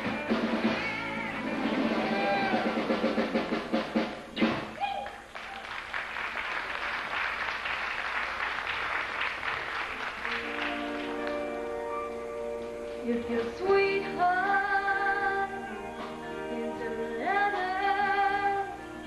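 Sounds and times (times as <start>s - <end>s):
live country band playing: 0.0s - 3.8s, 10.0s - 19.0s
audience applauding: 4.9s - 11.8s.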